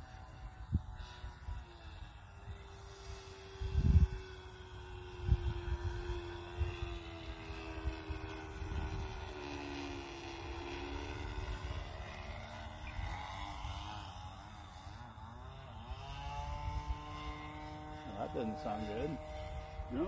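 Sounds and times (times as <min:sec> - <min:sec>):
model airplane engine droning: 0:00.0 - 0:20.0
wind buffeting microphone: 0:03.4 - 0:13.8.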